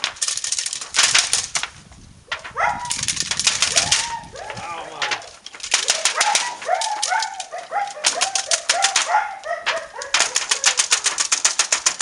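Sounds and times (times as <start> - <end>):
crackling clatter of clicks: 0.0 - 12.0
puppies yipping: 2.5 - 3.0, 3.7 - 5.2, 5.8 - 11.0.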